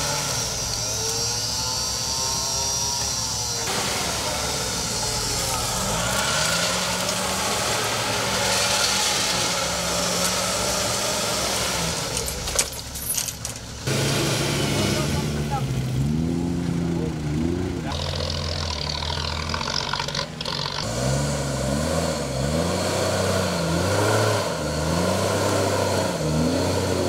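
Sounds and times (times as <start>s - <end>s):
mechanical whine: 0.0s - 11.0s
off-road engine revving: 0.0s - 27.0s.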